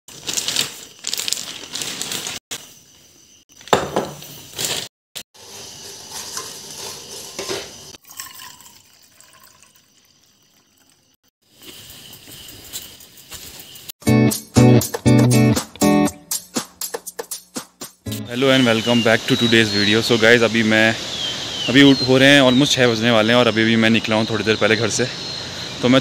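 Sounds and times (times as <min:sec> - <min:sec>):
plastic bag rustling: 0:00.1 - 0:02.5, 0:04.4 - 0:07.4.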